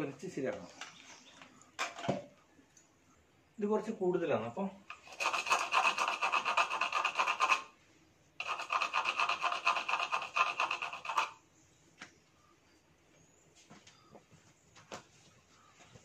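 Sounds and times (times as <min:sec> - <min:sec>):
plastic rubbing against plastered wall: 0:04.9 - 0:07.8, 0:08.4 - 0:11.4.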